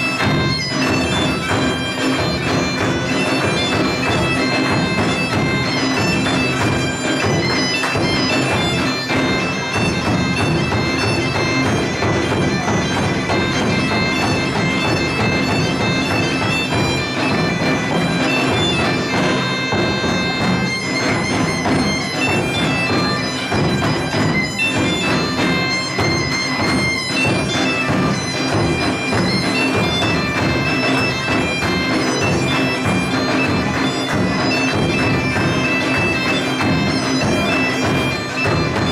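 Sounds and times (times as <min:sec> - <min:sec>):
bagpipe playing over drone: 0:00.0 - 0:38.9.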